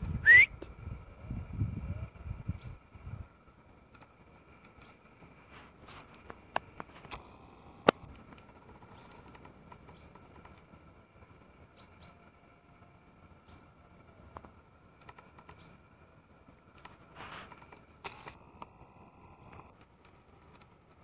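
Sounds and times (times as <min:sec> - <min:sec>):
small birds chirping: 0:02.4 - 0:03.0, 0:04.0 - 0:10.8, 0:11.6 - 0:12.3, 0:13.3 - 0:16.0, 0:16.8 - 0:21.0
sharp clicks: 0:03.9 - 0:05.3, 0:06.1 - 0:10.7, 0:14.3 - 0:15.8, 0:19.4 - 0:21.0.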